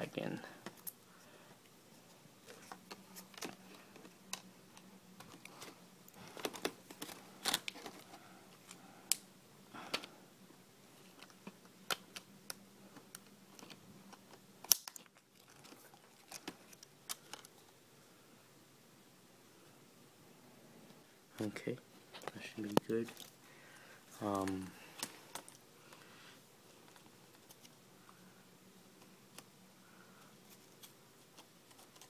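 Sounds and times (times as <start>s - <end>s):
plastic crinkles: 2.4s - 8.8s, 12.9s - 17.6s.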